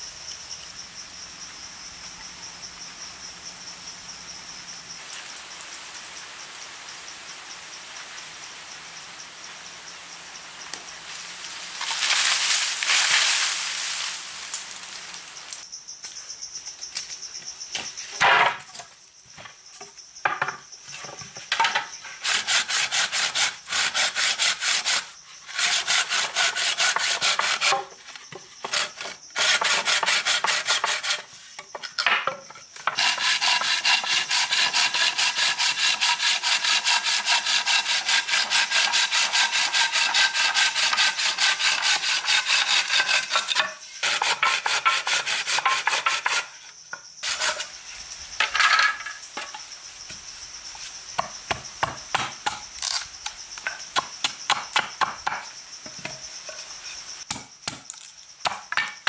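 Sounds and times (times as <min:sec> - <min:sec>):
insects buzzing: 0:00.0 - 0:59.0
handsaw cutting wood: 0:22.2 - 0:27.9, 0:28.6 - 0:31.3, 0:32.9 - 0:46.5, 0:47.2 - 0:47.7.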